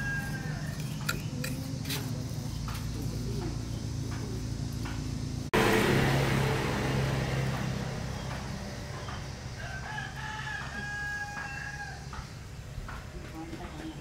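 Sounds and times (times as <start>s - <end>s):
rooster crowing: 0.0s - 1.0s, 9.2s - 12.3s
steady low running noise: 2.5s - 9.6s.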